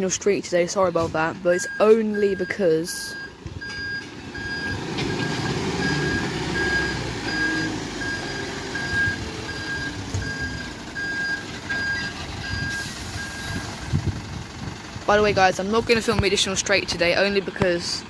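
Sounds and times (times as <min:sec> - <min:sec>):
diesel engine running: 0:00.0 - 0:18.0
reversing alarm beeping: 0:01.5 - 0:13.7.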